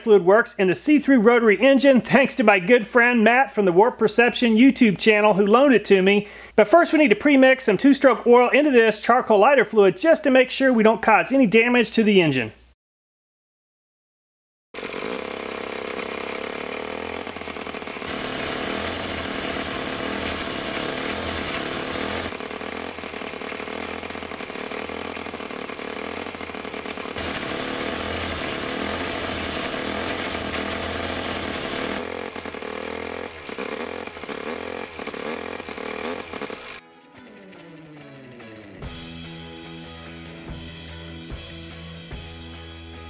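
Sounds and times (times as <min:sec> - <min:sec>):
small rotary engine running: 0:14.8 - 0:36.8.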